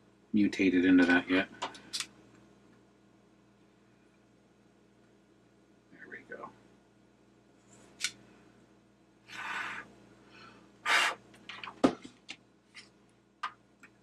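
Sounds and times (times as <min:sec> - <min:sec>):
soldering hisses: 0:09.3 - 0:09.9, 0:10.8 - 0:11.2.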